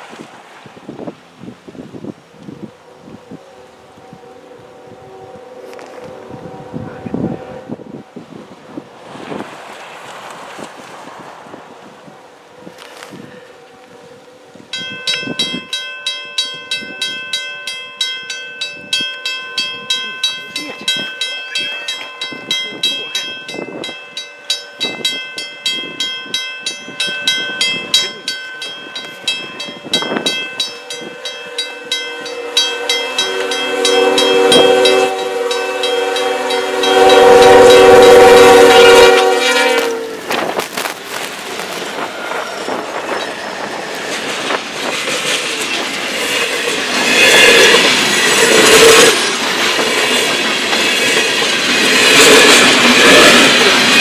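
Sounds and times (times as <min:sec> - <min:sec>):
locomotive horn chord: 0:02.6 - 0:08.0, 0:12.5 - 0:15.7, 0:27.9 - 0:40.4
level-crossing warning bell: 0:12.6 - 0:40.2, 0:41.9 - 0:54.0.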